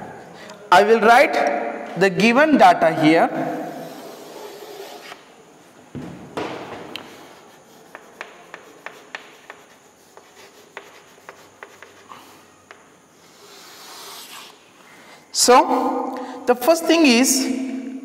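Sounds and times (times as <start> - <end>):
chalk tapping and scratching: 3.8 - 5.2, 7.0 - 14.6.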